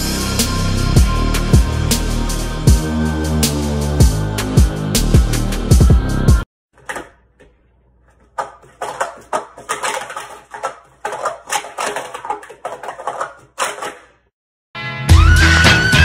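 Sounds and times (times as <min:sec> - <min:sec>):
plastic cups clacking: 0:06.7 - 0:14.3.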